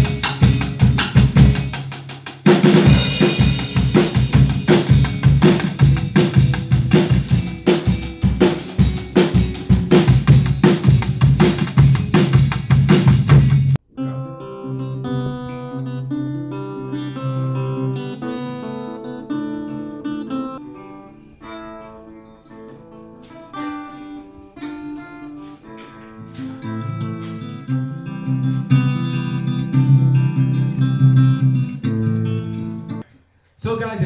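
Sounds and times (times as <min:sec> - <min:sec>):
rock drum beat: 0:00.0 - 0:13.8
acoustic guitar picking: 0:00.0 - 0:33.1
cymbal crash: 0:02.6 - 0:06.4.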